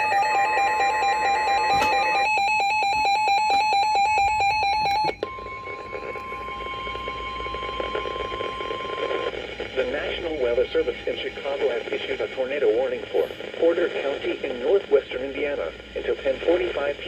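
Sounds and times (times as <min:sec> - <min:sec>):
electronic alarm warbling and beeping: 0:00.0 - 0:09.3
steady single-pitch warning tone: 0:00.0 - 0:12.0.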